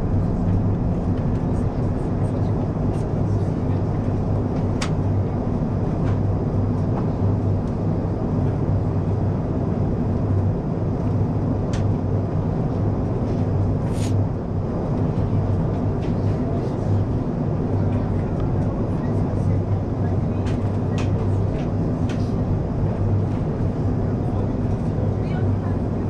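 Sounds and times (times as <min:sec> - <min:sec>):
aircraft engines droning: 0:00.0 - 0:26.0
rush of airflow: 0:13.7 - 0:14.4.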